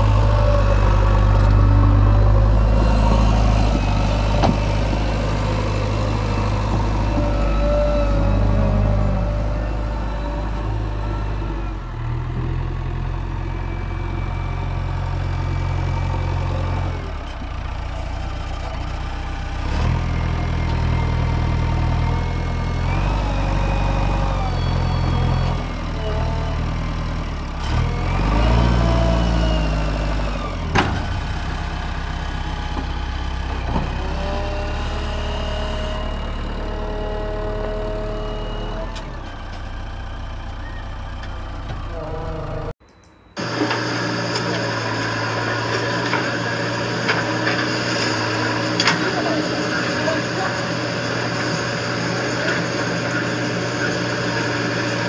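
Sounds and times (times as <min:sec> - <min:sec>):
hydraulic whining: 0:00.0 - 0:18.9, 0:43.4 - 0:55.0
diesel engine under load: 0:00.0 - 0:55.0.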